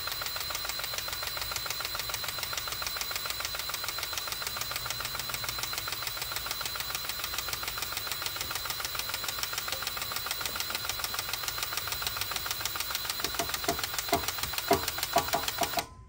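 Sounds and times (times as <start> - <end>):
power grease gun rattling: 5.6 - 15.9.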